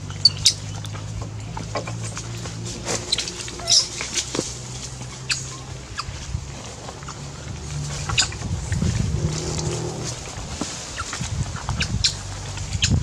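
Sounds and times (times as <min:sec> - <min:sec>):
clicks and scuffles on bamboo: 0:00.0 - 0:13.0
young monkeys squeaking: 0:00.2 - 0:00.9, 0:03.0 - 0:04.0, 0:05.2 - 0:06.3, 0:08.0 - 0:10.0.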